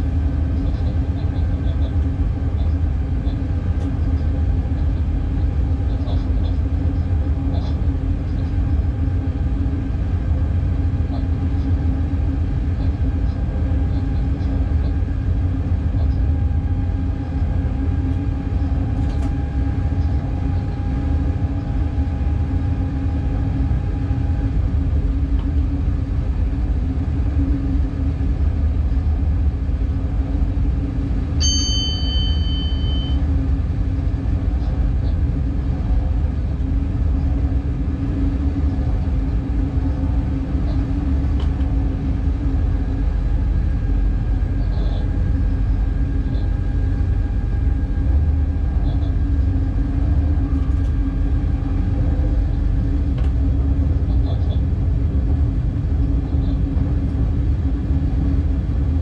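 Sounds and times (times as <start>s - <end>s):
train wheels rumbling on track: 0.0s - 59.0s
short high electronic beep: 31.4s - 33.2s.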